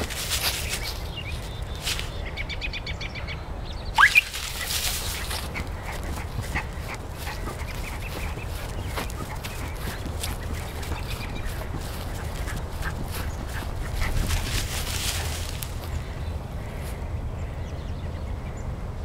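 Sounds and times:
footsteps through grass and leaves: 0.0s - 2.2s, 4.0s - 16.2s
small dog yipping: 4.0s - 5.2s.

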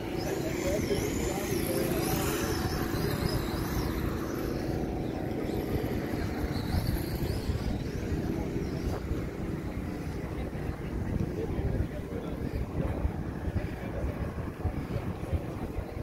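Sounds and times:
wavering high-pitched tones: 0.0s - 9.5s
murmur of voices: 0.0s - 16.0s.

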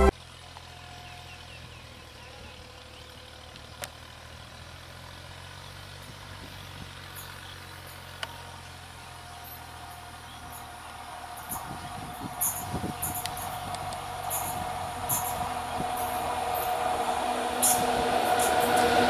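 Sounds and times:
distant locomotive hum: 8.1s - 19.0s.

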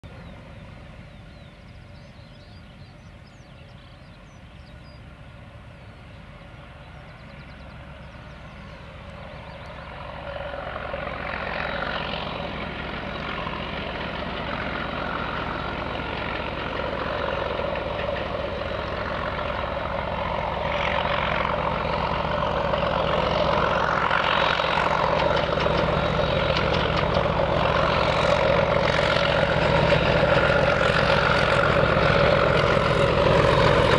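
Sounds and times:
birds singing faintly: 0.0s - 26.7s
diesel locomotive engine: 0.0s - 33.9s.

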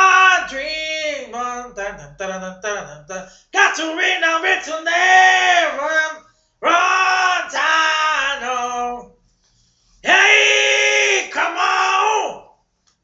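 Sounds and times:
man singing unaccompanied: 0.0s - 9.1s.

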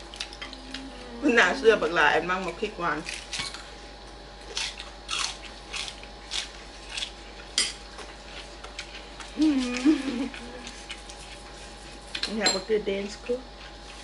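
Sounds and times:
crunching raw pepper: 3.0s - 12.2s.

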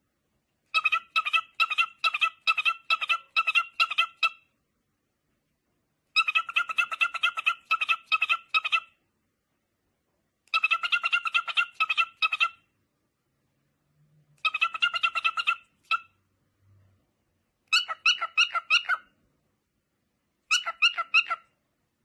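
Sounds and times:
animal chirping: 0.7s - 4.5s, 6.2s - 9.0s, 10.5s - 12.7s, 14.4s - 16.2s, 17.7s - 19.1s, 20.5s - 21.6s.

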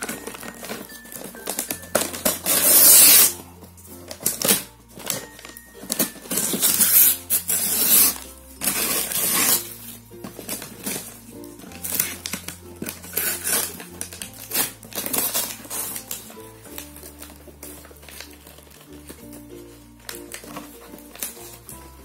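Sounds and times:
paper wrapping ripping: 0.0s - 22.0s.

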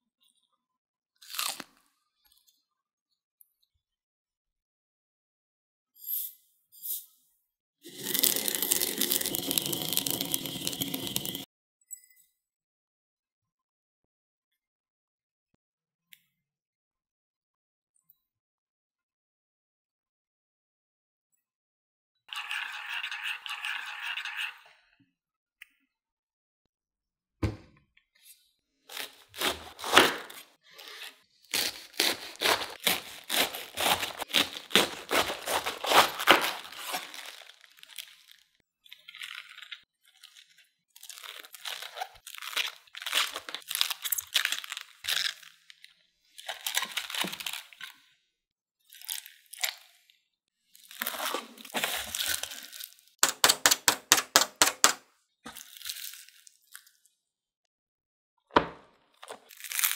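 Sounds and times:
cabbage leaves cracking and tearing: 1.2s - 1.8s, 28.9s - 48.0s, 48.9s - 50.0s, 50.8s - 57.0s, 59.2s - 59.9s.

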